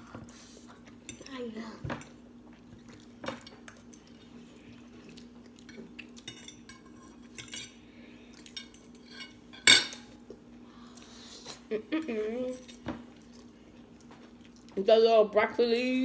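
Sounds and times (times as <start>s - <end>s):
forks clinking on plates: 5.7s - 7.8s, 8.5s - 10.1s.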